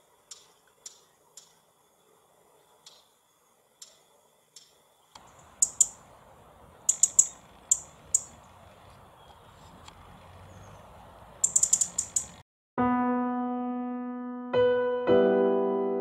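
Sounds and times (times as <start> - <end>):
faint outdoor background noise: 0.0 - 12.4
robin tic calls: 0.0 - 12.4.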